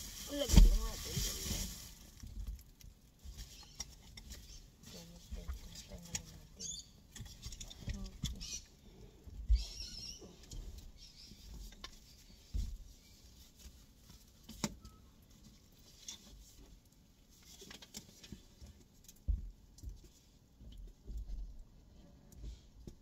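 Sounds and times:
rustling: 0.0s - 19.3s
thumps and knocks in car: 19.3s - 20.0s.

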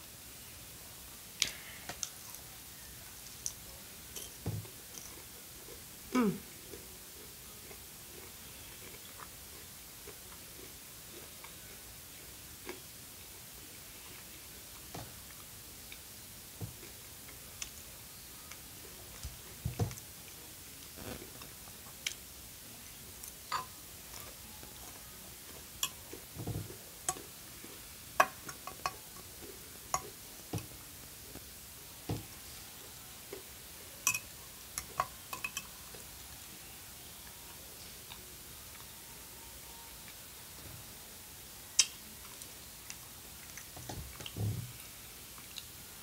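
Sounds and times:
mouth and handling sounds: 20.8s - 21.6s
fork tapping glass bowl: 35.0s - 35.7s.

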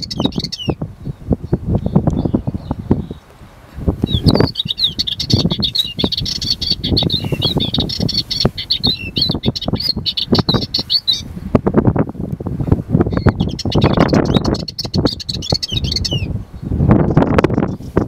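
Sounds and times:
bird warbling: 4.0s - 11.3s, 13.1s - 16.3s.

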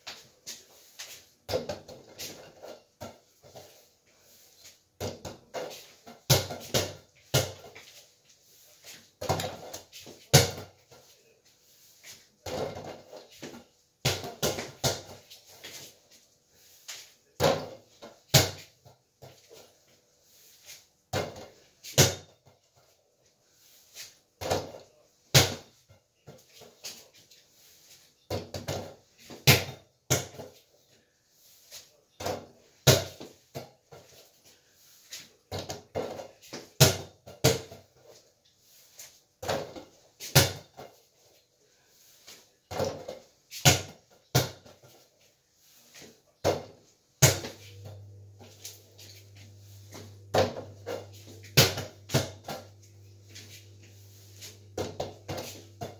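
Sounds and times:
ball thudding on backboard and rim: 5.0s - 7.8s, 21.1s - 22.3s, 50.2s - 52.8s, 54.7s - 55.9s.

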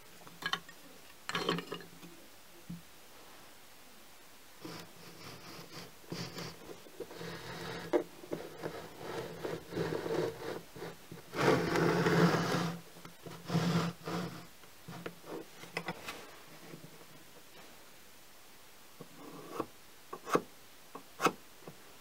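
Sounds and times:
pencil scratching: 4.6s - 15.5s
wood scraping across tabletop: 4.6s - 16.9s.

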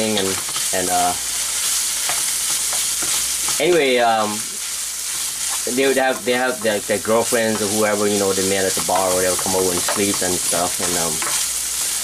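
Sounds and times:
meat sizzling in a skillet: 0.0s - 12.0s
wooden spatula stirring: 4.6s - 12.0s.

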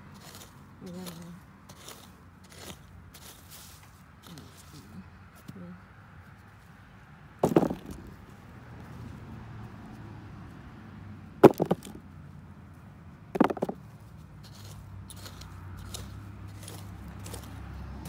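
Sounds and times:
rustling of soil and plants: 0.0s - 10.1s, 11.4s - 18.0s
hard knocks: 7.4s - 8.2s, 11.4s - 12.0s, 13.4s - 13.8s.

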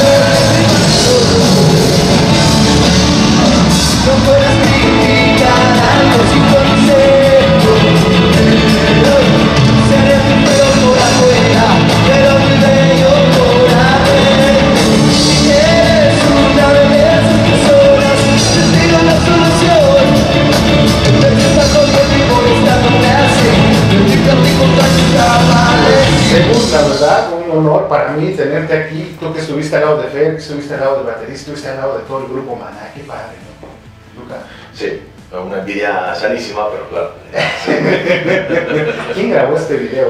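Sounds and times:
live rock band playing: 0.0s - 27.2s
man singing: 0.0s - 27.3s.

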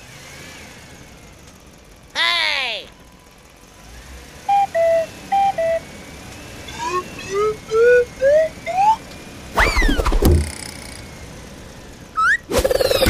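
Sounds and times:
rising sliding electronic notes: 4.5s - 5.8s, 6.7s - 10.7s, 12.2s - 13.0s
two-tone electronic beep: 4.5s - 5.8s, 6.7s - 9.0s.

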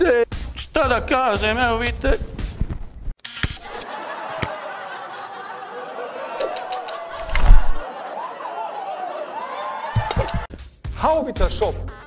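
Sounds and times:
people laughing and chattering: 3.7s - 10.5s
sharp clicks: 6.4s - 7.8s.

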